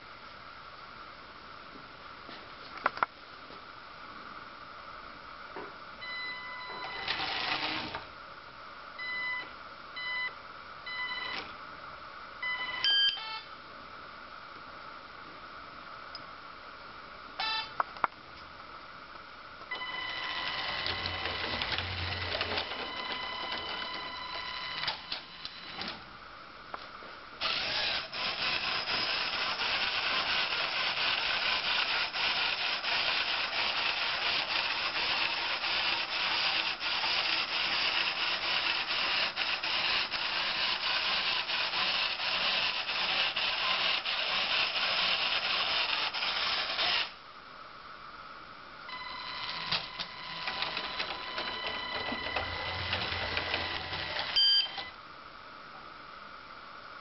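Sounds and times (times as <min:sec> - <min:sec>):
toy train motor whining: 0:06.8 - 0:08.1, 0:19.8 - 0:25.6, 0:27.4 - 0:47.2, 0:49.4 - 0:54.8
plastic gears grinding rattle: 0:20.5 - 0:23.2, 0:27.4 - 0:47.1.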